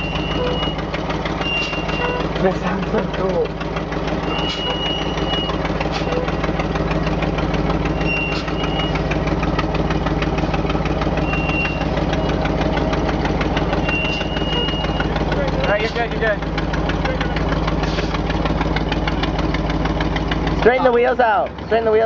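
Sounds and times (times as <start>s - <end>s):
truck engine running: 0.0s - 22.0s
thin high squeal: 1.4s - 2.3s, 4.3s - 6.3s, 8.0s - 9.0s, 11.2s - 11.9s, 13.8s - 15.1s.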